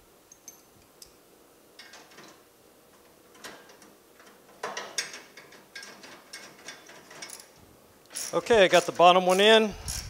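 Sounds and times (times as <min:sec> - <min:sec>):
light metal clinks: 0:00.3 - 0:01.2
ratchet wrench clicking: 0:08.1 - 0:10.0.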